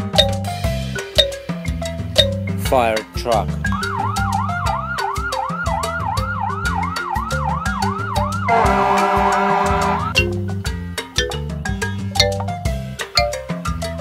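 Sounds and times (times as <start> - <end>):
background music with beat: 0.0 - 14.0
fire engine siren: 3.7 - 10.2
horn-like blast: 8.5 - 10.2.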